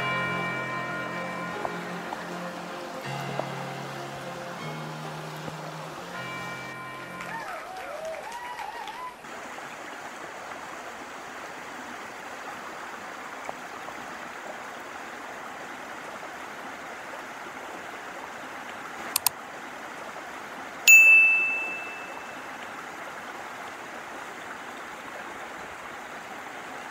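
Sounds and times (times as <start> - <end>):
bright chime: 0.0 - 5.2, 6.1 - 7.6, 20.9 - 22.5
creek water rippling over stones: 0.0 - 8.2, 9.2 - 26.9.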